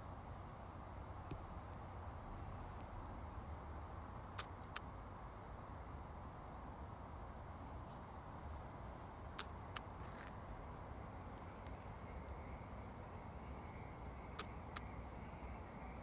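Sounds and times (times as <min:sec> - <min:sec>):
outdoor background rumble: 0:00.0 - 0:16.0
sharp clicks: 0:04.4 - 0:04.9, 0:14.4 - 0:14.9.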